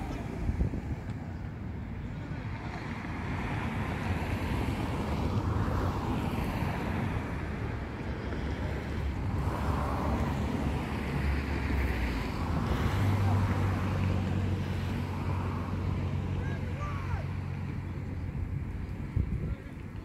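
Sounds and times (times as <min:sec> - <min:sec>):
wind buffeting microphone: 0:00.0 - 0:16.2, 0:17.3 - 0:20.0.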